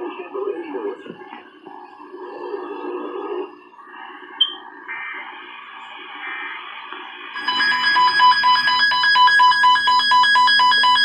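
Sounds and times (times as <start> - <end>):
quiet radio audio: 0.0 - 11.0
rapid pulsing electronic alarm beep: 4.4 - 5.3, 7.4 - 11.0.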